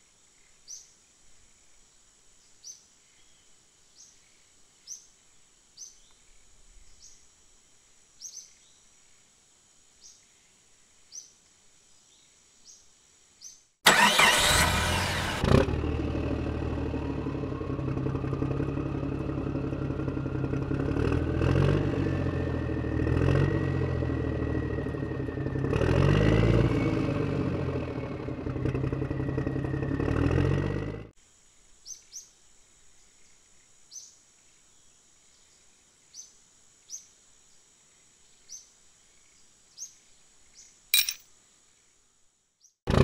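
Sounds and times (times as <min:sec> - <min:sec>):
model tractor motor humming: 0:13.9 - 0:15.6.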